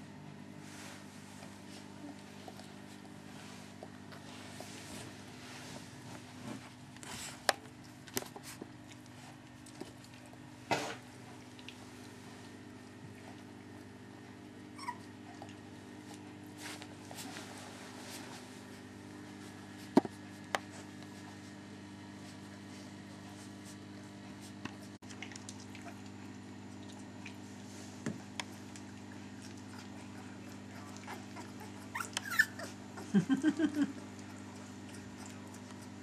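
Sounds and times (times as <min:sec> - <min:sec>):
steady low hum: 0:00.0 - 0:36.0
puppies crying: 0:14.7 - 0:15.5, 0:30.7 - 0:33.2.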